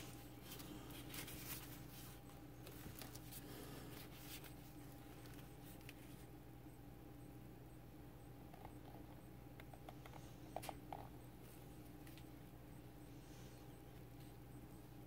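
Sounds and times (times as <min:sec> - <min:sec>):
faint rustles: 0:00.0 - 0:06.3
low room hum: 0:00.0 - 0:15.0.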